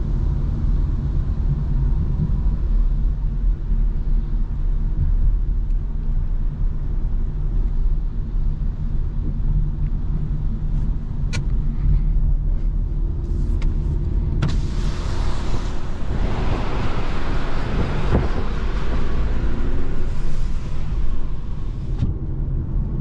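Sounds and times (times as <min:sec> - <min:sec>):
car engine and tyres droning: 0:00.0 - 0:23.0
rush of road noise: 0:00.0 - 0:23.0
power window going down: 0:14.4 - 0:21.0.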